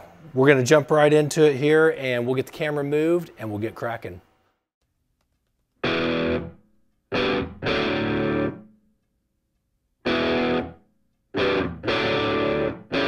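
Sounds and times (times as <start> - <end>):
distorted electric guitar chords: 5.8 - 8.7, 10.0 - 10.8, 11.4 - 13.0.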